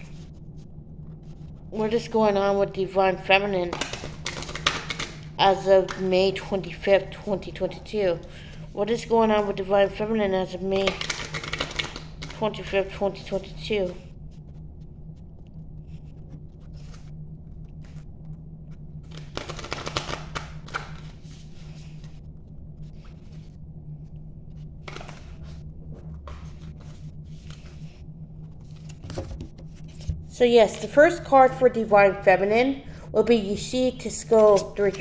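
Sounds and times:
steady low hum: 0:00.0 - 0:35.0
cards being shuffled: 0:03.6 - 0:05.2, 0:10.8 - 0:12.4, 0:15.8 - 0:17.1, 0:19.0 - 0:22.2, 0:24.8 - 0:25.6.

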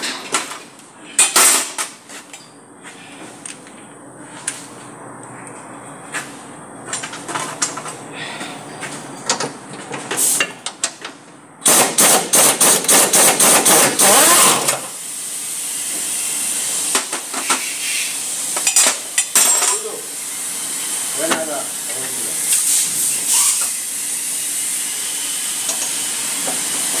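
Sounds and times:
pneumatic impact wrench hammering: 0:11.6 - 0:15.0, 0:15.8 - 0:19.9, 0:22.5 - 0:27.0
steady air hiss: 0:14.9 - 0:18.6
tool clinks and knocks: 0:18.6 - 0:19.9.

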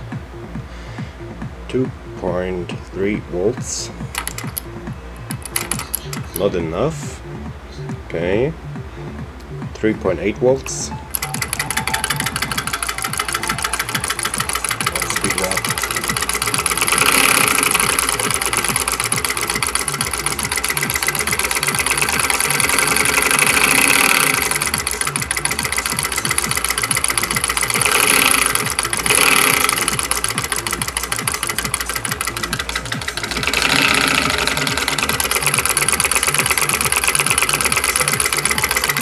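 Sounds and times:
solenoid engine clattering: 0:04.1 - 0:06.6, 0:11.1 - 0:39.0.

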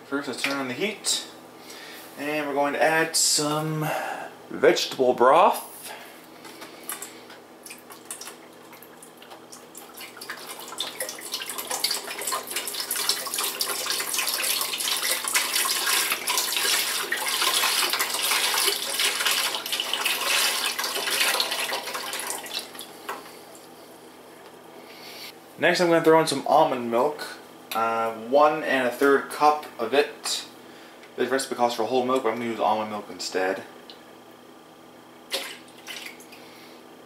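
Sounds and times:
liquid pouring into pot: 0:07.7 - 0:22.8.

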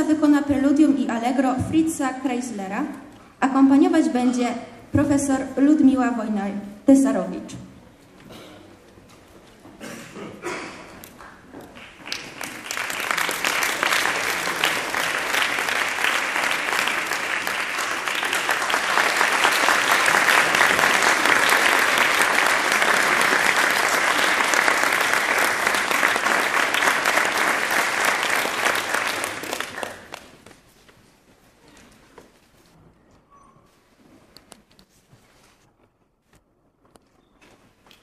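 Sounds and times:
audience applauding: 0:11.1 - 0:30.5.

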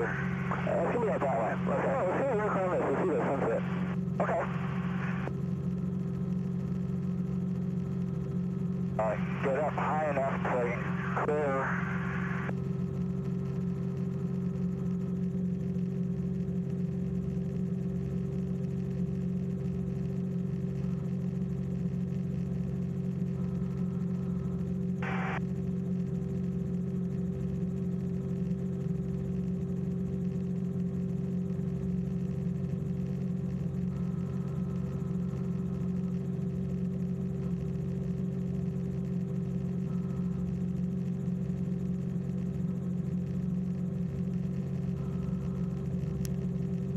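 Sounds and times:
small aircraft engine droning: 0:00.0 - 0:46.9.

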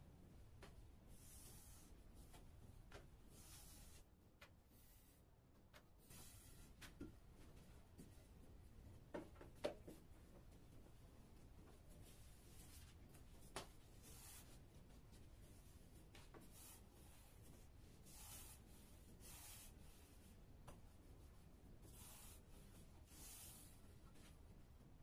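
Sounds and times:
rolling pin swishing over dough: 0:12.0 - 0:24.4.

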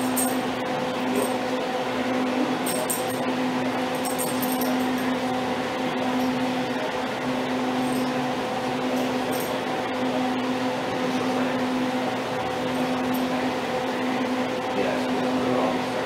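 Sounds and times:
mechanical hum with tones: 0:00.0 - 0:16.0
dog collar tags jingling: 0:02.7 - 0:03.2, 0:04.0 - 0:05.0.

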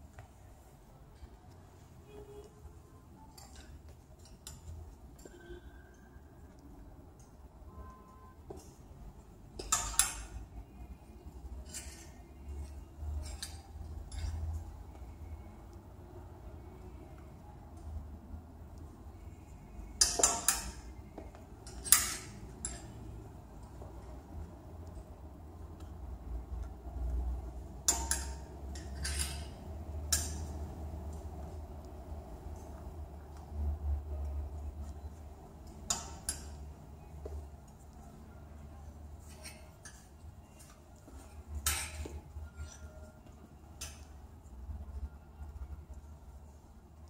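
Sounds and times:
clothes hangers clinking on metal rail: 0:03.2 - 0:05.4, 0:09.6 - 0:10.5, 0:11.6 - 0:14.7, 0:20.0 - 0:20.9, 0:21.6 - 0:23.2, 0:27.7 - 0:30.6, 0:35.6 - 0:36.8, 0:39.2 - 0:44.2.

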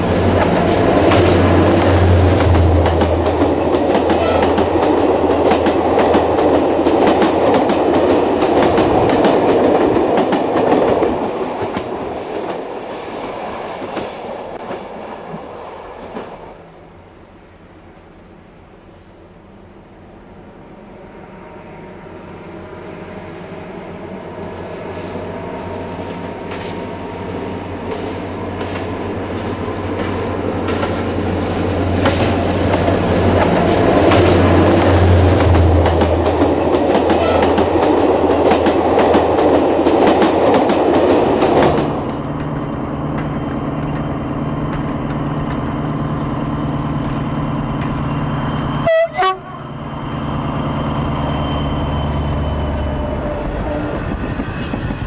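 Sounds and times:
diesel locomotive engine: 0:00.0 - 0:55.0
train wheels clacking over rail joints: 0:00.1 - 0:14.8, 0:27.9 - 0:44.1.

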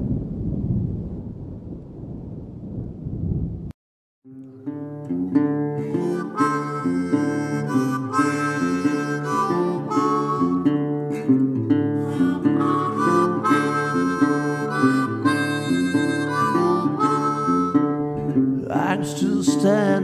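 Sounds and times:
acoustic guitar: 0:04.3 - 0:20.0
harmonica melody: 0:04.5 - 0:19.9.

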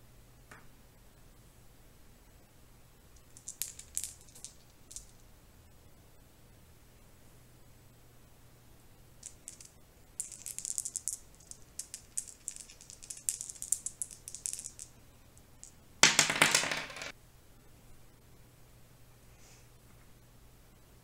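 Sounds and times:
dice clattering on wooden table: 0:03.2 - 0:05.2, 0:09.2 - 0:17.1
dice rattling in hand: 0:03.2 - 0:05.2, 0:09.2 - 0:17.1.

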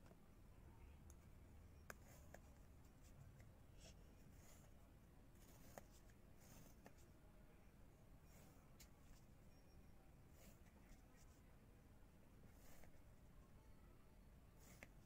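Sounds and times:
pencil scratching on paper: 0:03.8 - 0:04.8, 0:05.4 - 0:07.0, 0:12.4 - 0:13.1, 0:14.6 - 0:15.0.

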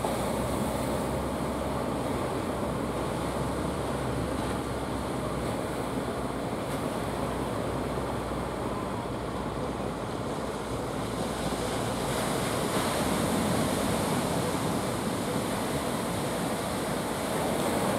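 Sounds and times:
surf breaking on beach: 0:10.6 - 0:17.9.

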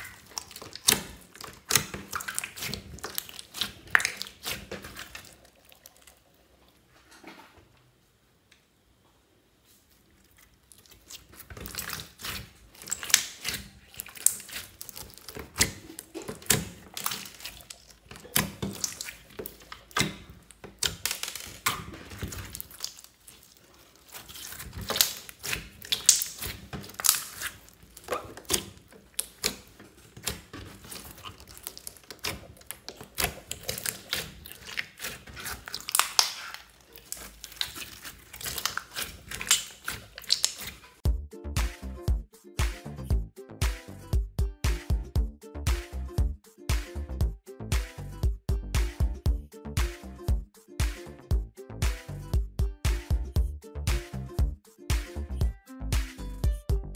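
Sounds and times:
slime clicking and popping: 0:00.0 - 0:05.4, 0:10.8 - 0:40.9.

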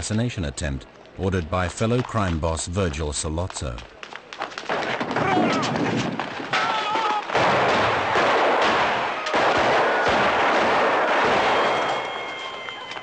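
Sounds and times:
echoing gunfire: 0:07.3 - 0:12.1.

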